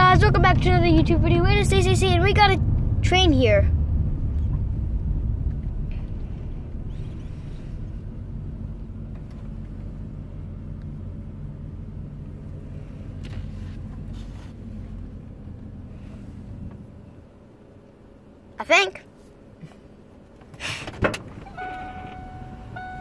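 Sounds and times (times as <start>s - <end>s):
car engine idling: 0.0s - 18.6s, 19.2s - 23.0s.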